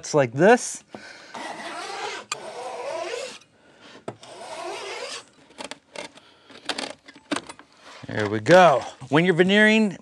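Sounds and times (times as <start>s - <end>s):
saw scraping through veneer: 1.3s - 3.5s, 4.2s - 5.3s.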